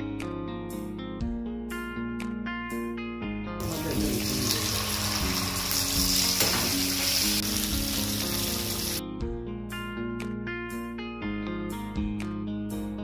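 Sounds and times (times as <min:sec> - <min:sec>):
guitar background music: 0:00.0 - 0:13.0
fish sizzling in hot oil: 0:03.6 - 0:09.0.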